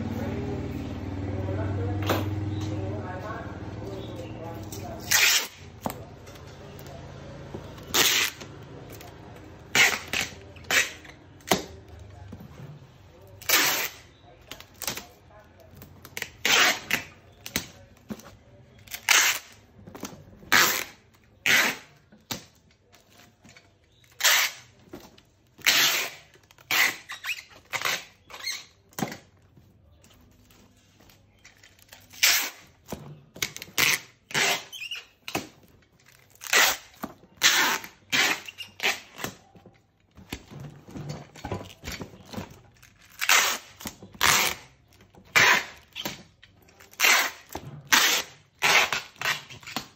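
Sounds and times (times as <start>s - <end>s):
packing tape pulled from tape gun: 5.0s - 5.7s, 7.8s - 8.5s, 9.7s - 11.2s, 13.4s - 14.0s, 18.9s - 19.6s, 20.5s - 22.0s, 23.9s - 24.8s, 25.6s - 28.8s, 31.8s - 32.7s, 36.2s - 39.4s, 42.9s - 44.7s, 45.3s - 49.9s.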